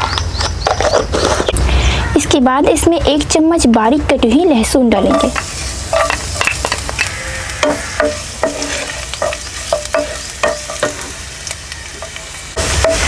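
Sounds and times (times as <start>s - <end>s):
garlic sizzling in hot oil: 4.9s - 13.0s
wooden spatula knocking pan: 5.1s - 11.2s.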